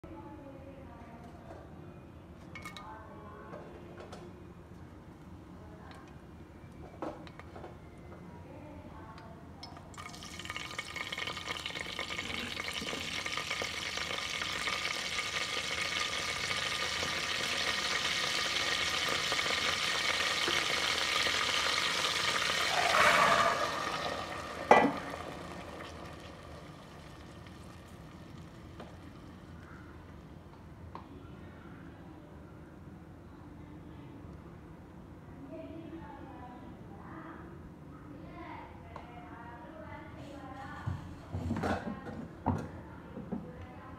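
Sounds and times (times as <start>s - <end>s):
spices sizzling in hot oil: 9.6s - 29.6s
knock on pan: 24.6s - 25.1s.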